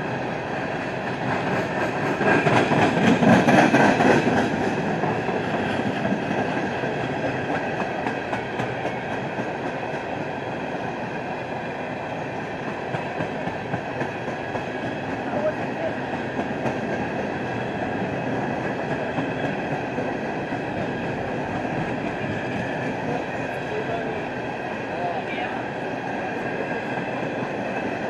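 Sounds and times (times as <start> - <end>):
freight train rumbling past: 0.0 - 28.0.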